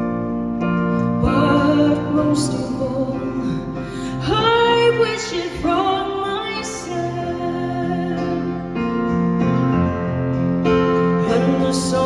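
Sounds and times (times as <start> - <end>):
keyboard accompaniment: 0.0 - 12.0
woman singing a slow ballad: 0.9 - 9.1, 11.0 - 12.0.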